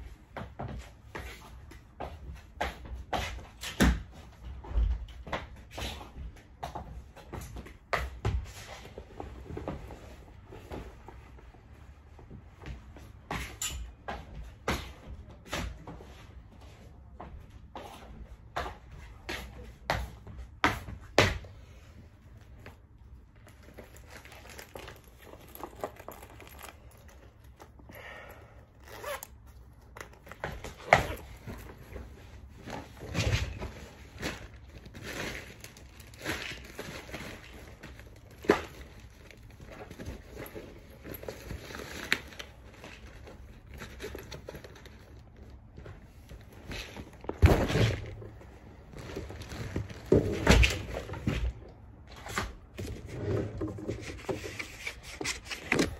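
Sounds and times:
rustling and crinkling: 14.2s - 28.0s, 28.6s - 55.9s.

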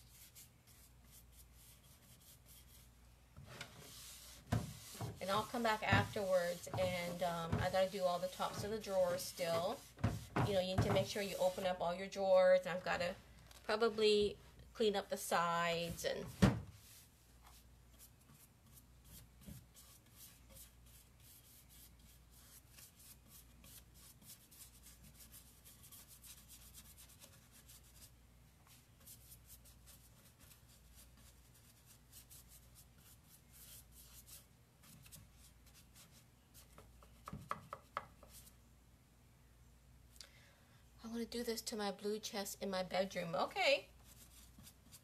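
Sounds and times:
wax rubbing on wood: 3.8s - 11.8s.

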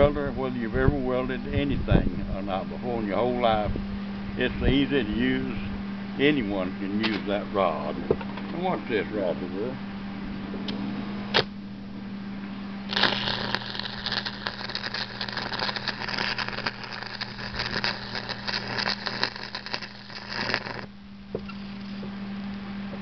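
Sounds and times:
steady low hum: 0.0s - 23.0s
welding arc crackling: 11.3s - 11.5s, 12.9s - 22.0s.

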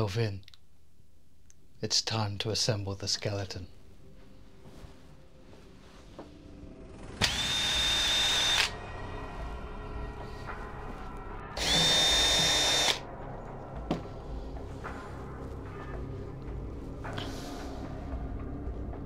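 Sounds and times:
cordless drill whining: 7.2s - 8.7s, 11.6s - 13.0s.

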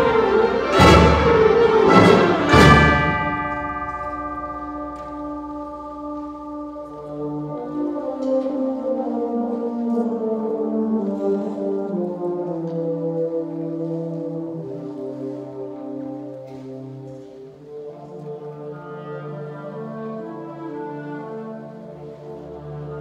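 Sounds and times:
concert band playing: 0.0s - 6.0s
ringing chimes: 2.5s - 6.0s.

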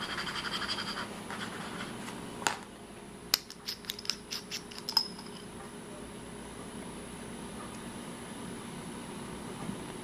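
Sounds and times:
pen nib scratching paper: 0.0s - 1.9s.

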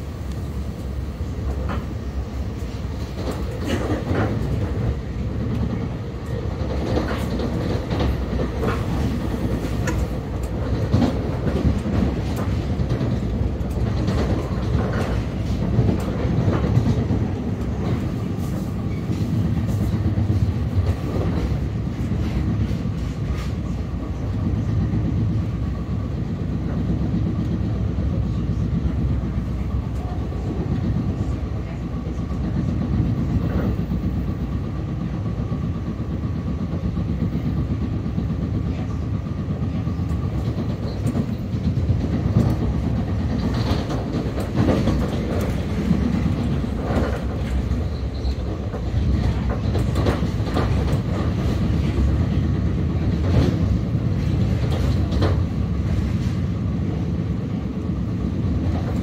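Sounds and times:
train rumble: 0.0s - 59.0s.

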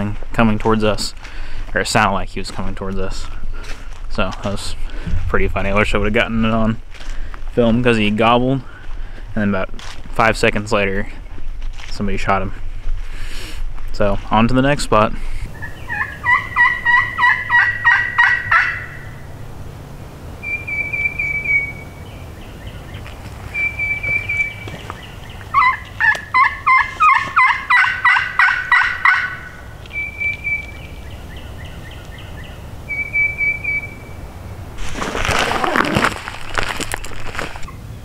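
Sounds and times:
turkey call notes: 15.4s - 19.4s, 20.4s - 34.3s.

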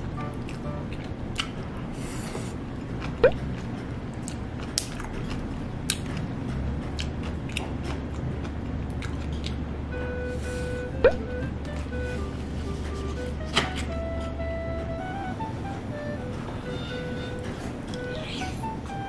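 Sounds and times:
steady low hum: 0.0s - 19.0s
close chewing and biting: 0.4s - 9.6s.

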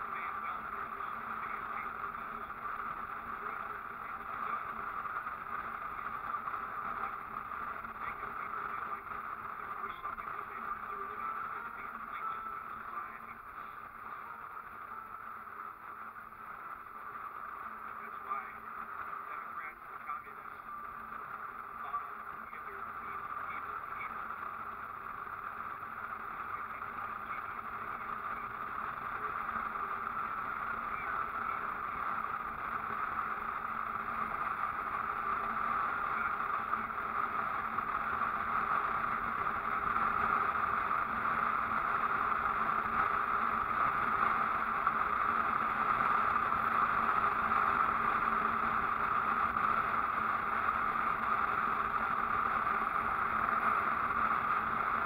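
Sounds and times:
faint low hum: 0.0s - 55.0s
vehicle road and wind noise: 20.5s - 55.0s.

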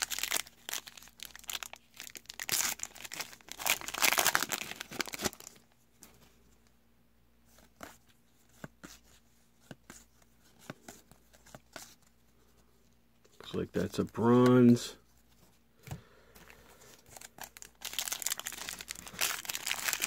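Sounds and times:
wrapper crinkling and tearing: 0.0s - 5.6s, 17.1s - 20.0s.

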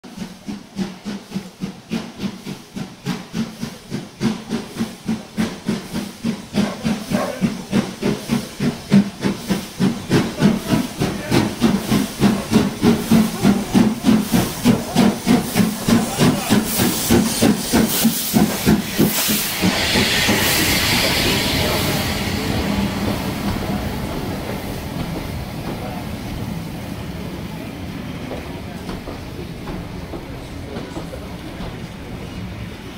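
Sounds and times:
steam locomotive chuffing: 0.0s - 32.9s
loud hiss of steam: 0.1s - 32.9s.

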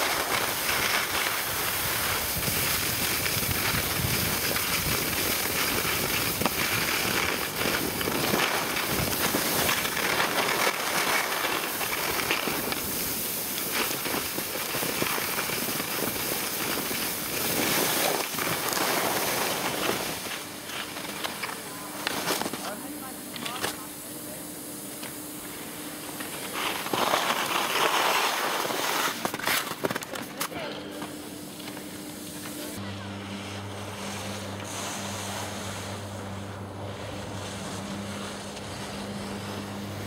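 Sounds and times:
skis scraping over snow: 0.0s - 40.0s
wind rushing over microphone: 1.4s - 9.8s.

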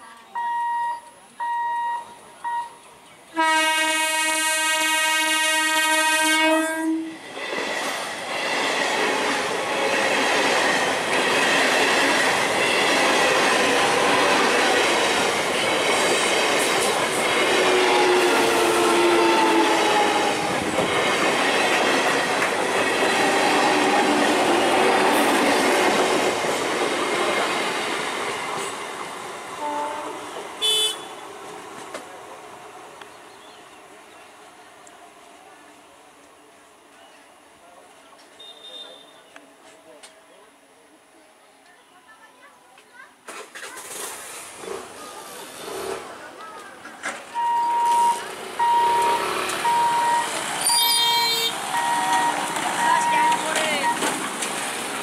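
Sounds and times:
train horn blast: 3.4s - 7.2s, 17.7s - 20.3s, 29.6s - 31.2s, 50.6s - 52.4s
train wheels clattering over rail joints: 52.1s - 55.0s.

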